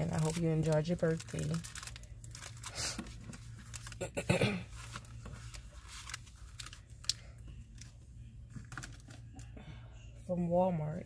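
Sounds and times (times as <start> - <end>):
plastic wrapping crinkling: 0.0 - 7.9.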